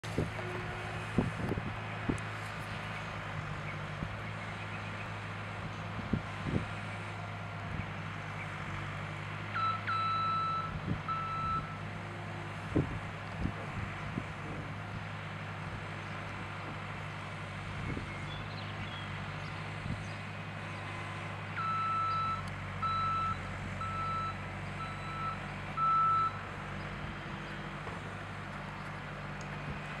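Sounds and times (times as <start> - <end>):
engine humming: 0.0 - 30.0
vehicle backup alarm beeping: 9.6 - 11.8, 21.0 - 26.4.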